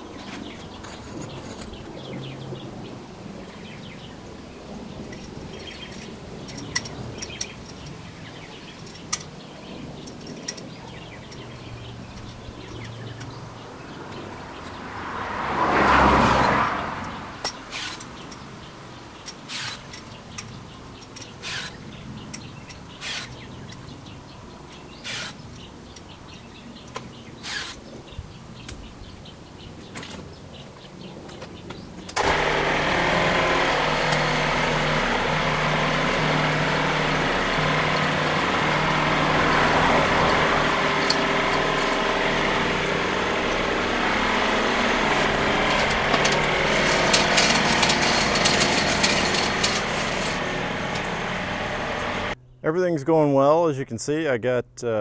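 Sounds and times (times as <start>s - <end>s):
birds chirping: 0.0s - 54.3s
fence wire clicking and scratching: 5.0s - 13.5s, 19.2s - 24.0s, 31.3s - 51.1s.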